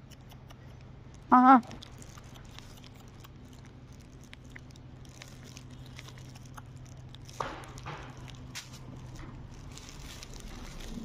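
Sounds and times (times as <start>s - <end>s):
dog chewing clicks: 0.0s - 0.9s, 1.8s - 8.4s
plastic wrapper crinkling: 1.1s - 11.0s.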